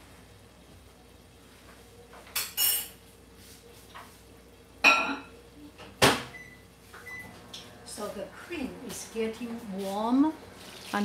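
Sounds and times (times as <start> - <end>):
metal kitchenware clinking: 2.3 - 3.0.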